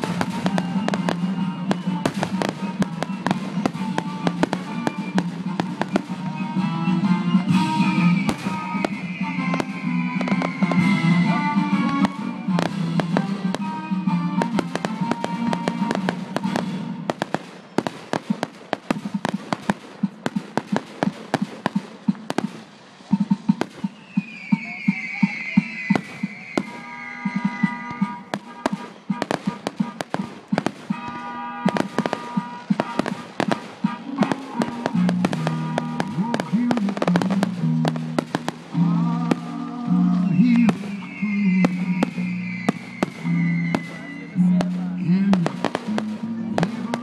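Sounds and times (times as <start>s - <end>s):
fireworks crackling and popping: 0.0s - 47.0s
music: 0.0s - 47.0s
falling firework whistle: 7.5s - 16.7s, 23.6s - 37.6s, 38.2s - 44.7s.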